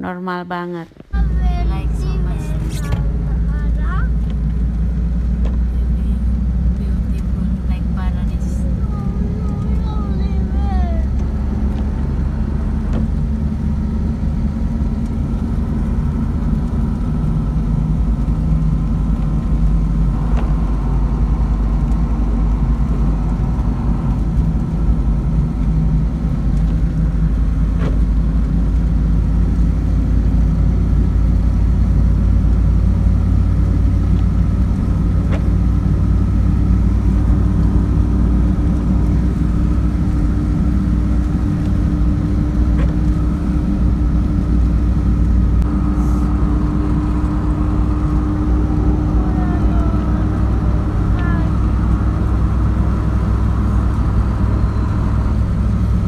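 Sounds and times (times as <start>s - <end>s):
engine and road rumble in cabin: 0.0s - 56.0s
steady hum: 12.3s - 56.0s.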